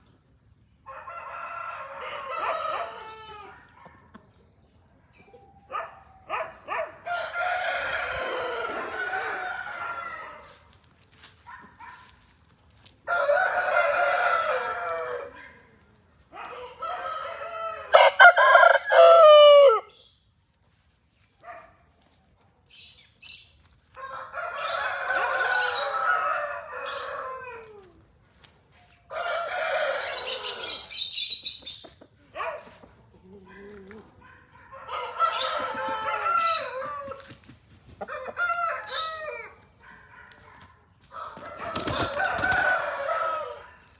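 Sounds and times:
roosters crowing: 0.8s - 3.7s, 6.5s - 11.3s, 12.8s - 15.6s, 16.3s - 20.0s, 23.8s - 28.2s, 28.9s - 34.0s, 34.6s - 39.8s, 41.0s - 43.9s.

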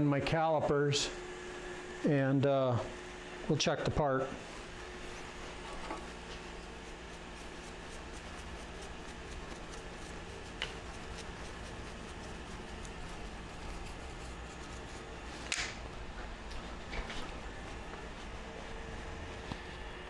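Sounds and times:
steady low hum: 0.0s - 20.0s
brush scratching metal chips: 4.4s - 15.5s, 16.5s - 20.0s.

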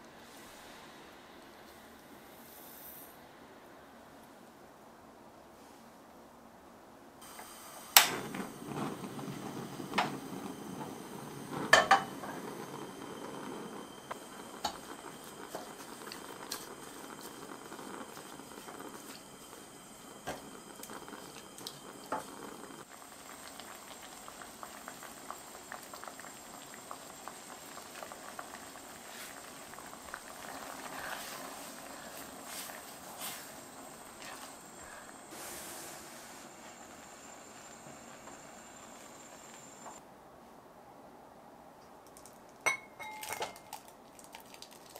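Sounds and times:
liquid bubbling in a pan: 7.2s - 39.9s, 43.0s - 44.9s.

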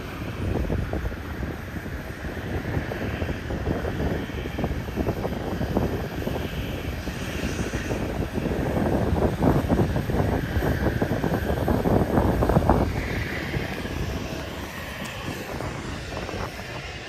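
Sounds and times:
aircraft engine rumble: 0.0s - 17.0s.

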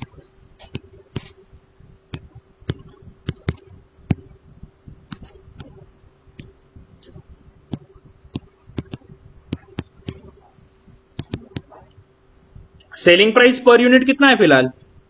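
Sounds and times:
stylus clicking on tablet: 0.0s - 1.4s, 2.1s - 4.4s, 5.1s - 5.8s, 6.4s - 10.5s, 11.2s - 12.0s
faint steady hum: 0.0s - 15.0s.

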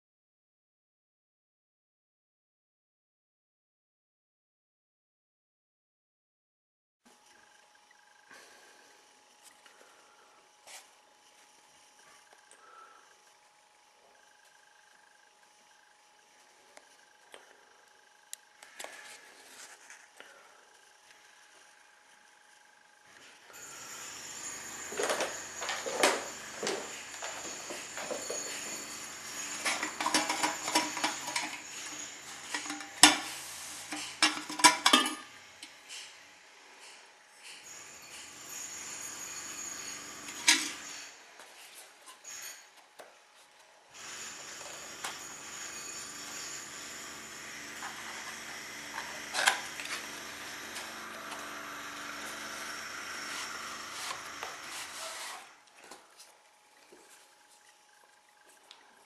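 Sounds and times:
metal scraping and clinking: 24.2s - 35.3s, 37.6s - 41.2s.

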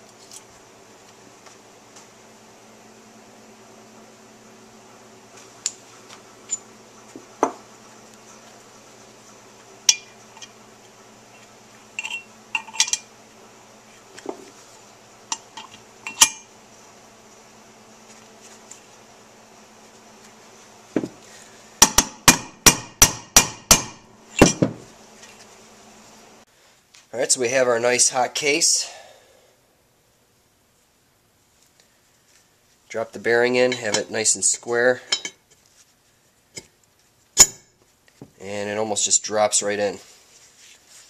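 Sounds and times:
metal clinks: 12.0s - 13.1s
hammer striking metal driver: 21.8s - 24.7s, 37.4s - 37.7s.

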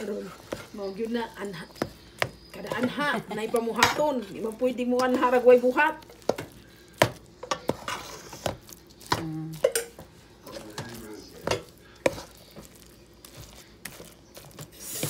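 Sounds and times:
utensil scraping a metal pot: 7.4s - 8.6s.

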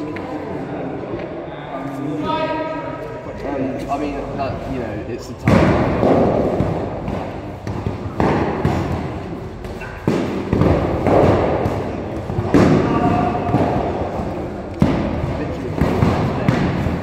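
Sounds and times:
padded swords striking shields: 5.4s - 17.0s.

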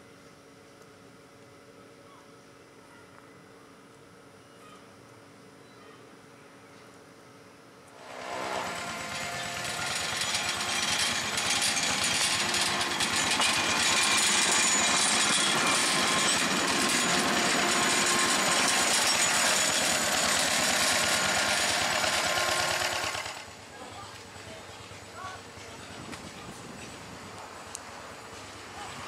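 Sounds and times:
small locomotive engine running: 7.9s - 29.0s.

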